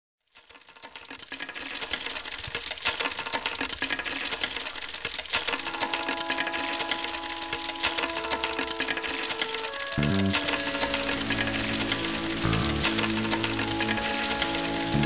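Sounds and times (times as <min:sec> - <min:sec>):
rapid mechanical clicking and rattling: 0:00.2 - 0:15.0
sustained held notes: 0:05.6 - 0:15.0.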